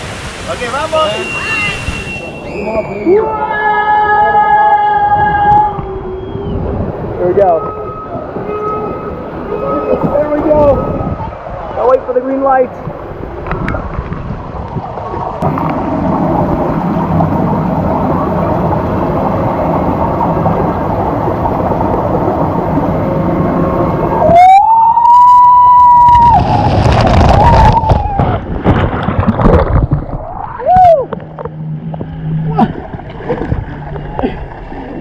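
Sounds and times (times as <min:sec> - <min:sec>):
water rushing down a slide: 0:00.0 - 0:02.7, 0:13.3 - 0:31.3.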